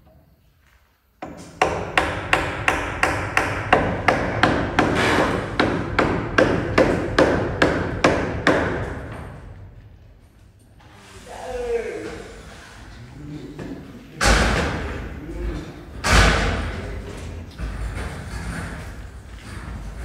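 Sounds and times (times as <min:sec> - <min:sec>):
hammer striking wood: 0:01.2 - 0:09.1.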